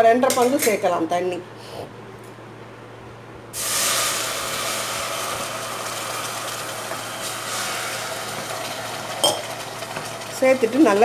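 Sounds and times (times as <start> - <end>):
water splashing into a hot pan: 3.6 - 10.2.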